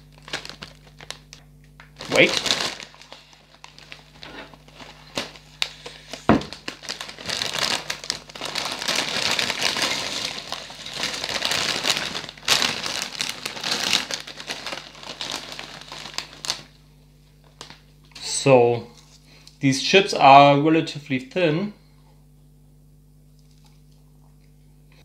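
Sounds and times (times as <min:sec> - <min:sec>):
plastic chip bag rustling: 0:00.0 - 0:01.4, 0:02.0 - 0:16.8.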